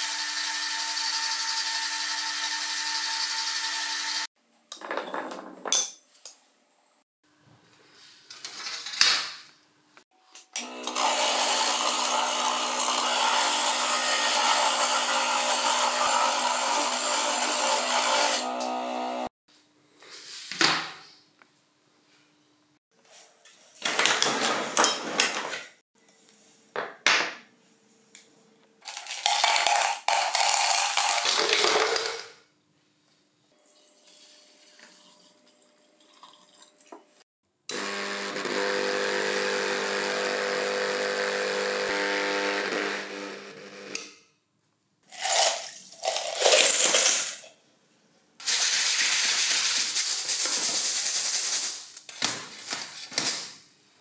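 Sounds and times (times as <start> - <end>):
metal parts clattering: 45.3 - 47.5.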